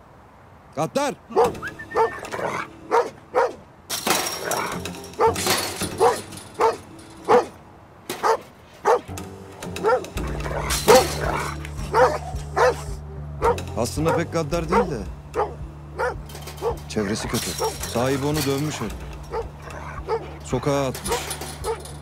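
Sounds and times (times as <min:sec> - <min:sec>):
dog barking: 0:01.3 - 0:03.6, 0:05.2 - 0:05.4, 0:06.0 - 0:07.6, 0:08.2 - 0:09.1, 0:09.8 - 0:16.8, 0:19.3 - 0:20.4, 0:21.1 - 0:21.8
dramatic background music: 0:09.1 - 0:20.9.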